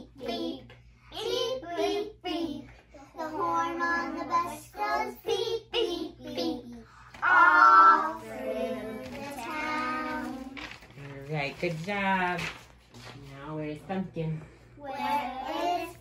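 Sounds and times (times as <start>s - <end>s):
children singing: 7.2s - 10.6s.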